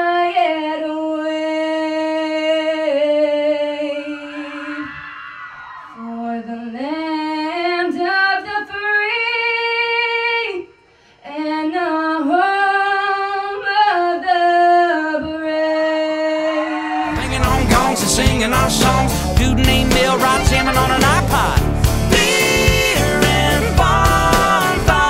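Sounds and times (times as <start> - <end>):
girl singing into microphone: 0.0 - 5.0, 5.9 - 17.0
loud recorded music: 17.0 - 25.0.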